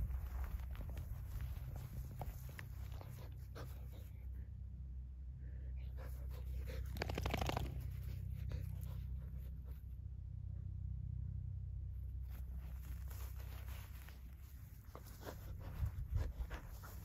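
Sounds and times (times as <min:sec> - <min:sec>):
rustling in long grass: 0:00.0 - 0:04.4, 0:06.0 - 0:09.9, 0:12.0 - 0:17.0
low rumble: 0:00.0 - 0:17.0
dog panting: 0:00.5 - 0:04.4, 0:05.8 - 0:09.8, 0:13.6 - 0:17.0.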